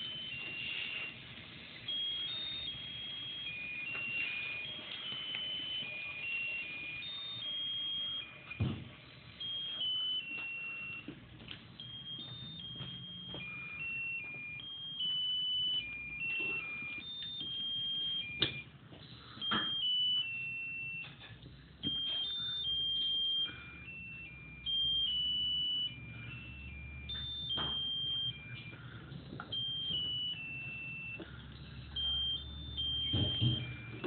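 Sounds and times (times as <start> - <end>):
electronic beeping tune: 0.0 - 34.0.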